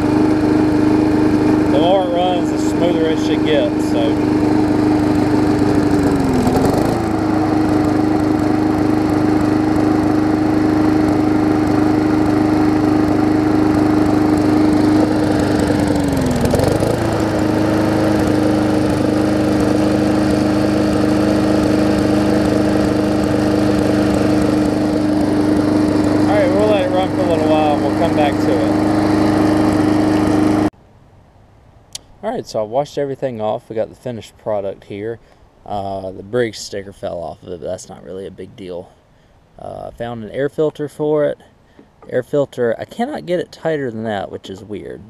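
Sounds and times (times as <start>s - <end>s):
lawn mower engine running: 0.0s - 30.8s.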